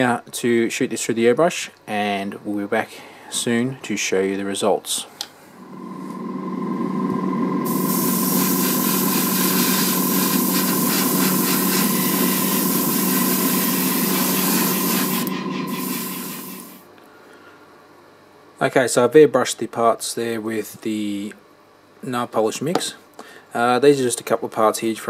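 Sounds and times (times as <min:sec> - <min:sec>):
extractor fan hum: 0:05.2 - 0:17.1
airbrush spraying hiss: 0:07.6 - 0:16.9.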